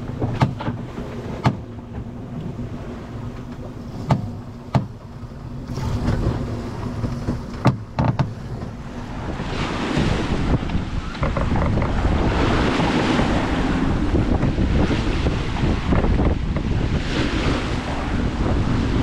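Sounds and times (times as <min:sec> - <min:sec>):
rush of wind and water: 0:00.0 - 0:19.0
sharp knocks: 0:00.2 - 0:00.8, 0:01.4 - 0:01.7, 0:04.0 - 0:05.1, 0:07.0 - 0:08.7.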